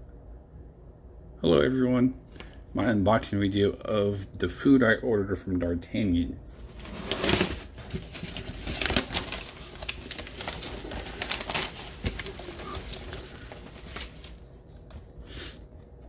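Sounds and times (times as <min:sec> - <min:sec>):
cardboard and paper rustling: 0:06.6 - 0:15.2.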